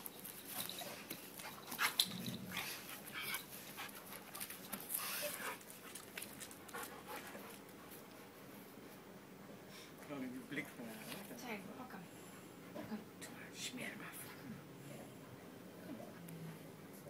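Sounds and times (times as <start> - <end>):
dogs scuffling: 0.0 - 8.1
dogs panting: 0.6 - 8.2.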